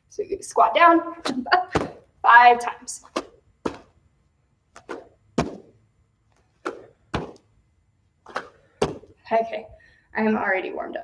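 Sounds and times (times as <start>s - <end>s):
bare feet thudding on mats: 1.2s - 2.1s, 3.0s - 4.0s, 4.7s - 7.5s, 8.2s - 9.2s.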